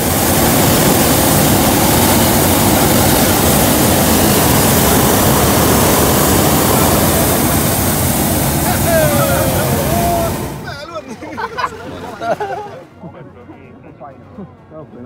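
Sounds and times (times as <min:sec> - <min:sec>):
propane burner flame rushing: 0:00.0 - 0:12.6.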